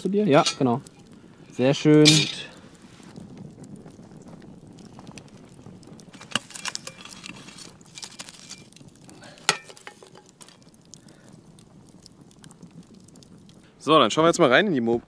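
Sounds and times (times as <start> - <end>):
metal shovel scraping on iron: 0.4 - 0.7, 2.0 - 2.5.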